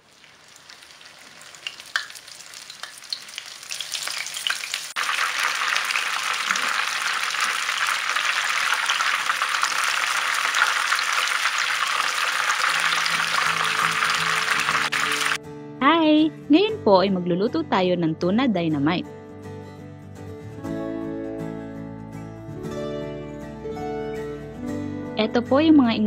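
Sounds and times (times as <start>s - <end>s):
food deep-frying in hot oil: 0.0s - 15.4s.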